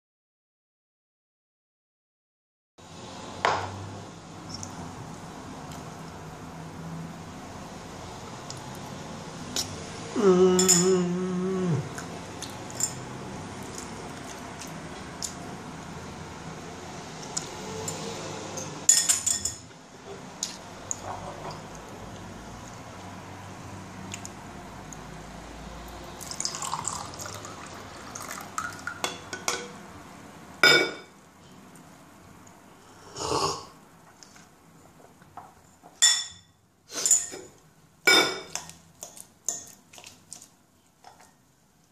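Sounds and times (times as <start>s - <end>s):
pitched voice-like hum: 10.0s - 12.1s
fork clinking against bowl: 10.6s - 10.9s, 38.1s - 39.8s
fizzy drink pouring into mug: 26.2s - 29.0s.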